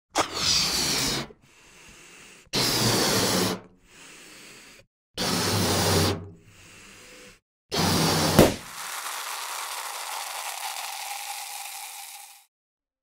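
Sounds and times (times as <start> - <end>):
air hissing into balloon: 7.7 - 12.5
balloon pop: 8.3 - 12.4.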